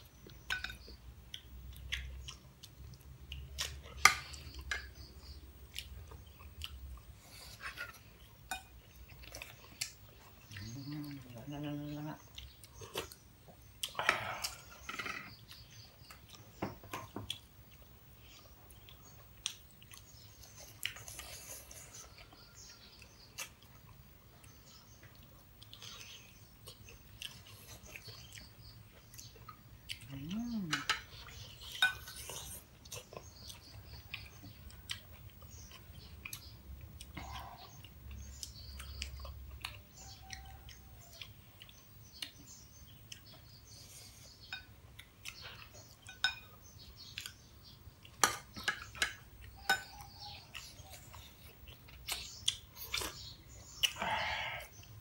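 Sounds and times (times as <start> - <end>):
people chewing: 0.0 - 55.0
spoon clinking ceramic bowls: 46.0 - 46.5.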